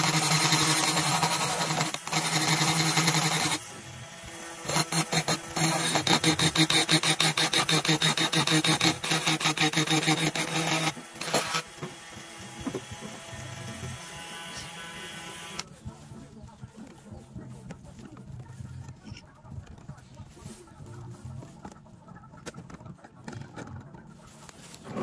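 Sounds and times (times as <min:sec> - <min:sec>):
rotary tool motor whine: 0:00.0 - 0:15.7
burr grinding metal: 0:00.0 - 0:15.8.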